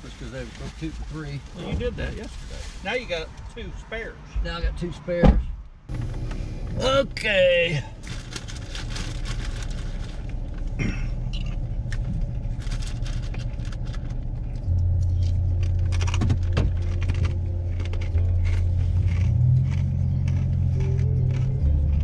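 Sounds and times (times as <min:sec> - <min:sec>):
clicks and rattles in cab: 0:11.3 - 0:18.6.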